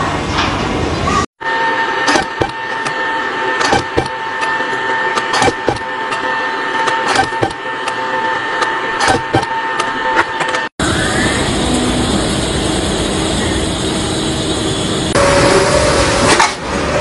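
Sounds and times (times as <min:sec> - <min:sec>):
machine high whine: 0:01.4 - 0:17.0.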